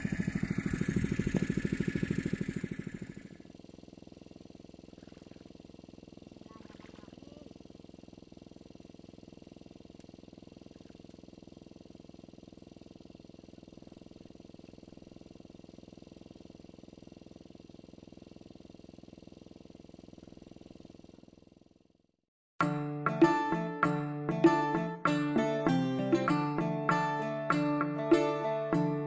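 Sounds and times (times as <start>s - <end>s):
faint engine hum: 0.0s - 22.1s.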